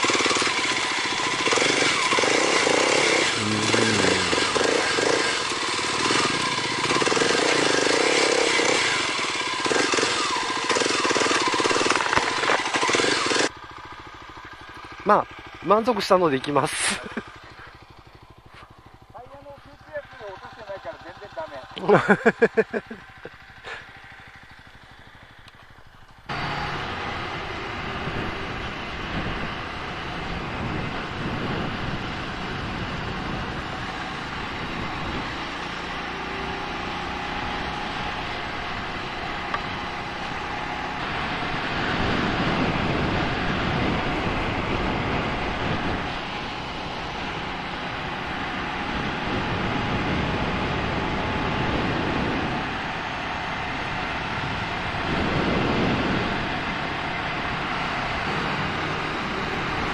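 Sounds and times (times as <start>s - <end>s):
motorcycle engine at road speed: 0.0s - 59.9s
wind rushing over microphone: 26.6s - 35.5s, 37.4s - 59.9s.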